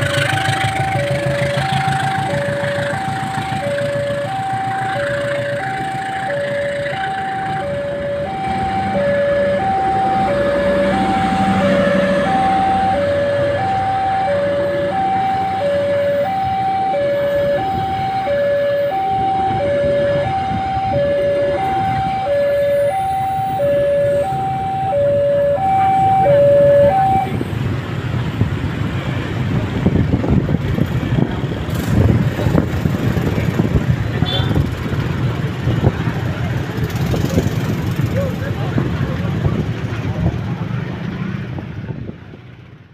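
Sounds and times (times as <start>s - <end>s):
two-tone level crossing alarm: 0.0s - 27.4s
train coaches rumbling on rails: 0.0s - 42.9s.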